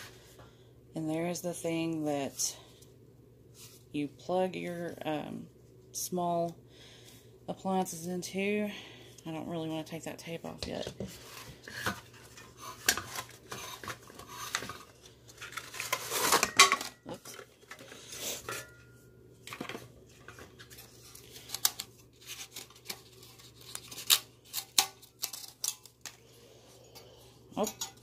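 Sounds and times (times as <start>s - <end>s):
packaging rustling: 11.2s - 18.2s
metal cookware clinks and knocks: 27.6s - 28.0s.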